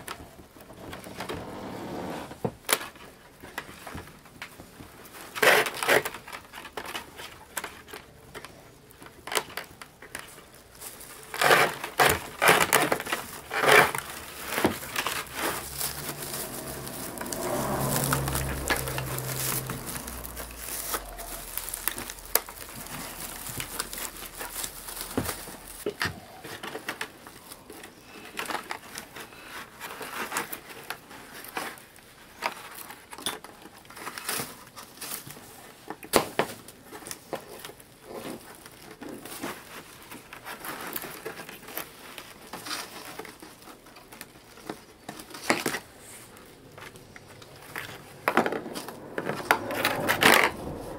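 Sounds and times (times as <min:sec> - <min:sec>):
dry plant strips rustling: 0:02.8 - 0:50.9
low hum: 0:14.0 - 0:25.8.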